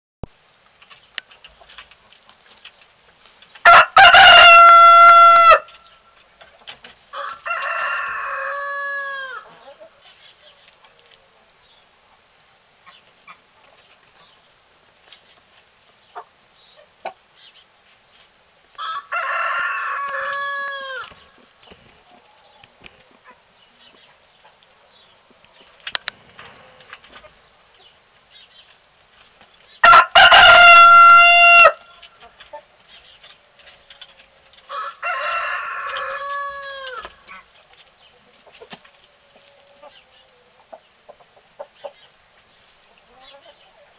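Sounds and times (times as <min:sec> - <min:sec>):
rooster crowing: 0:03.6 - 0:05.7, 0:07.1 - 0:09.4, 0:18.8 - 0:21.1, 0:29.8 - 0:31.8, 0:34.7 - 0:37.1.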